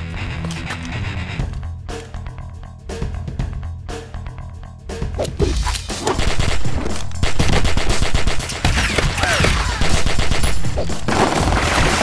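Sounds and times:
cartoon gunfire: 0:06.0 - 0:12.0.

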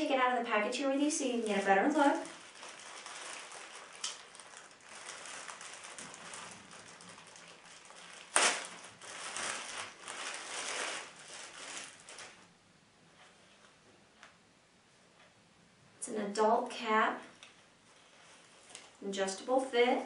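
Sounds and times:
plastic bag crinkling: 0:00.0 - 0:12.5.

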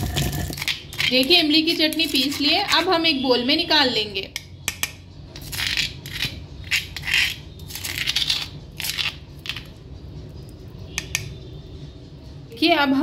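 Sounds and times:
utensil scraping stone slab: 0:00.0 - 0:01.2, 0:05.5 - 0:08.5.

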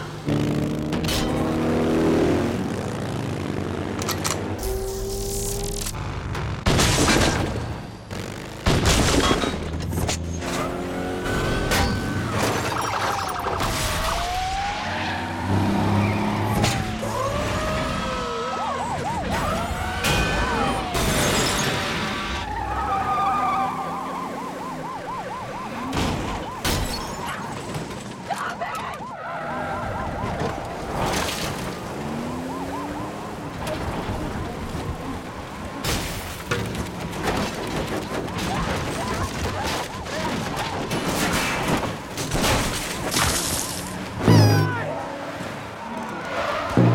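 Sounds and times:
vehicle engines: 0:00.0 - 0:06.7, 0:09.3 - 0:46.9
emergency sirens wailing and yelping: 0:10.1 - 0:35.8, 0:36.5 - 0:42.2, 0:42.9 - 0:46.9.

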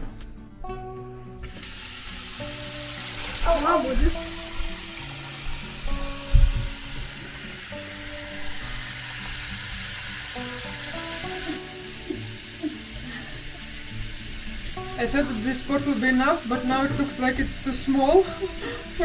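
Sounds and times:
background music: 0:00.0 - 0:19.0
low thump: 0:06.3 - 0:06.8.

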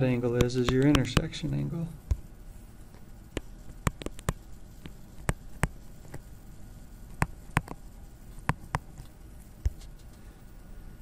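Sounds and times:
stylus tapping on tablet screen: 0:02.9 - 0:06.3, 0:07.1 - 0:07.8, 0:08.4 - 0:09.8.

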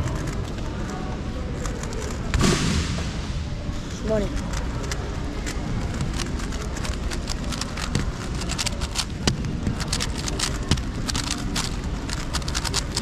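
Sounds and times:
steady background noise: 0:00.0 - 0:13.0
puzzle cube clicking: 0:04.1 - 0:13.0.

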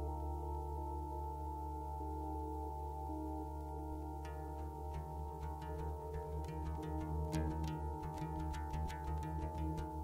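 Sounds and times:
ambient drone music: 0:00.0 - 0:10.0.

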